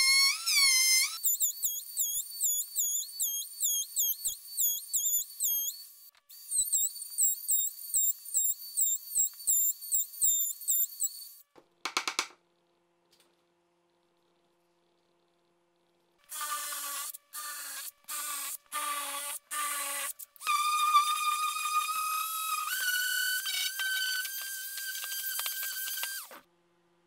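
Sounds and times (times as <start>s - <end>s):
trim router whining: 20.8s - 26.4s.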